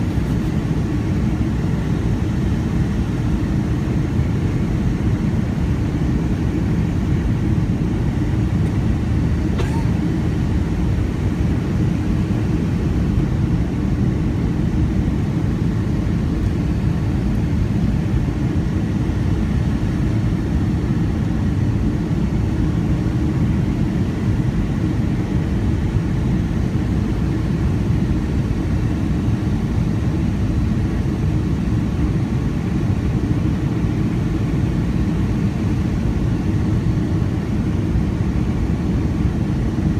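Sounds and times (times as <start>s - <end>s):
jet cabin engine and airflow rumble: 0.0s - 39.9s.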